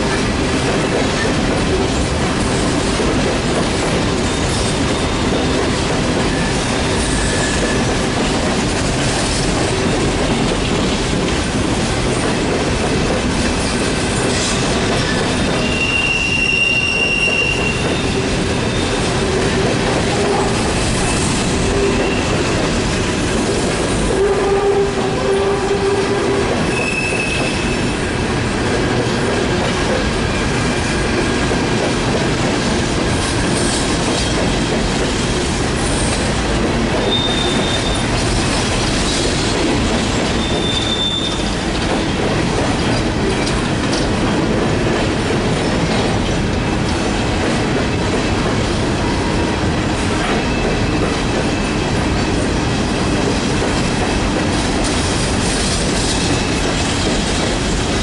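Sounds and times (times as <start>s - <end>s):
train wheels rumbling on rails: 0.0s - 58.0s
high wheel squeals: 15.1s - 19.0s, 37.1s - 38.1s, 40.4s - 41.5s.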